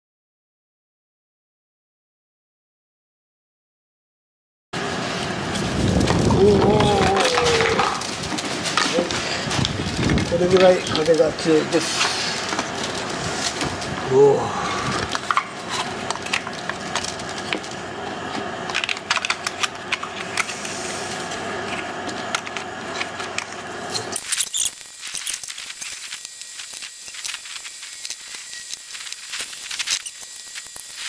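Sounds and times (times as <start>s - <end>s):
wind noise on microphone: 5.3s - 8.3s, 9.4s - 10.6s
plastic parts clicking and rattling: 18.7s - 20.5s.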